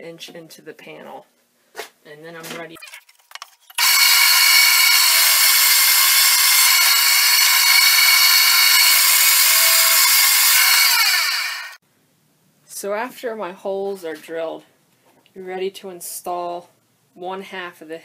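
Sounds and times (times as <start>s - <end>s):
drill press boring wood: 3.8s - 11.8s.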